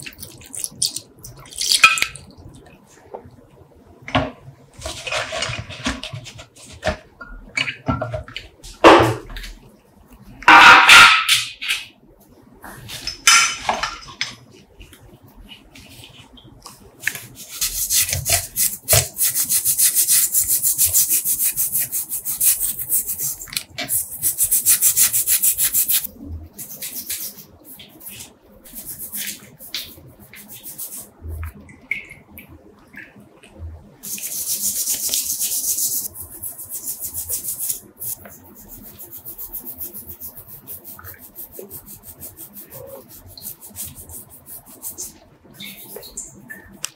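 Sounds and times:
brush scrubbing wet metal: 17.0s - 31.6s, 34.0s - 46.3s.

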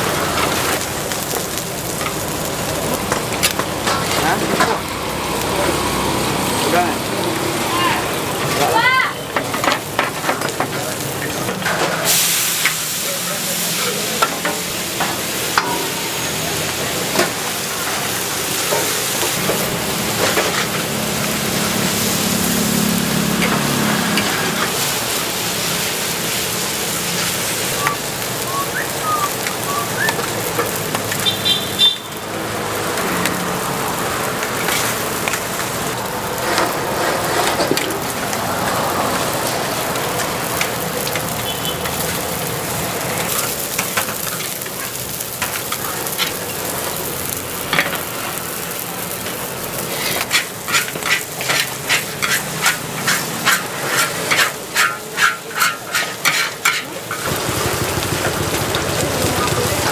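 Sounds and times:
noodles sizzling in wok: 0.0s - 59.9s
metal spatula scraping wok: 13.7s - 27.7s, 34.4s - 39.4s, 49.2s - 58.4s.

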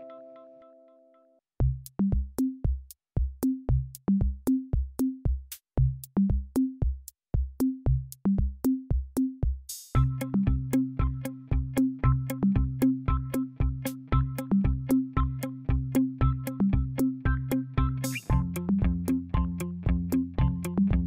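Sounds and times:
drum machine beat: 1.6s - 21.0s
low bass notes: 10.0s - 21.0s.

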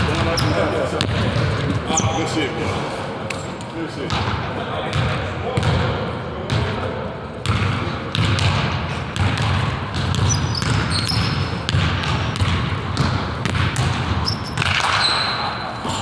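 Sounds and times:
sneaker squeaks: 0.0s - 2.5s, 10.0s - 13.1s, 13.8s - 16.0s
basketball dribbling on wood floor: 7.4s - 15.0s.

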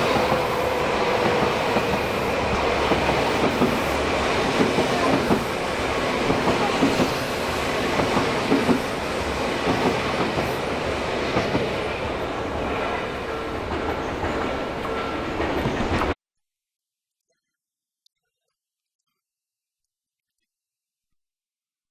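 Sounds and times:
electric train passing: 0.0s - 16.2s.

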